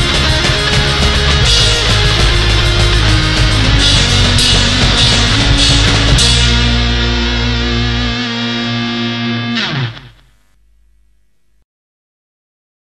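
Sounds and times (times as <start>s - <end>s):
punk rock band playing: 0.0s - 10.4s.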